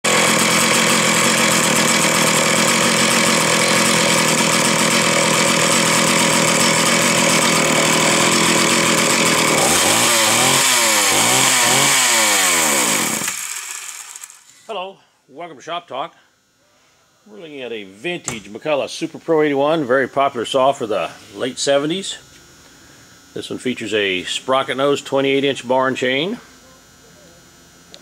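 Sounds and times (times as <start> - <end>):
chainsaw engine running: 0.0 - 14.5.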